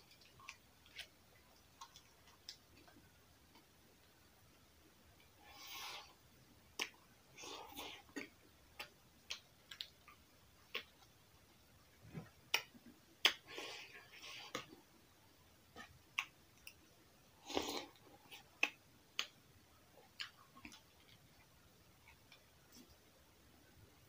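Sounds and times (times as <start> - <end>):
chewing: 0.1 - 3.6
mouth smacks and clicks: 6.8 - 7.0, 7.6 - 11.1, 12.5 - 13.6, 15.8 - 16.8, 17.5 - 19.4.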